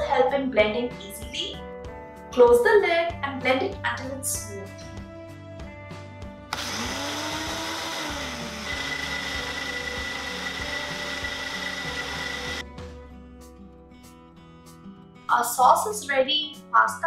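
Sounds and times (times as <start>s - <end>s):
blender motor running: 6.5s - 12.6s.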